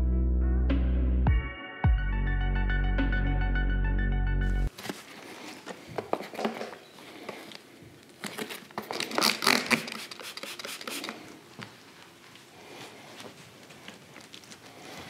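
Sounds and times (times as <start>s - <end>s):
spray bottle hissing: 9.8s - 11.2s.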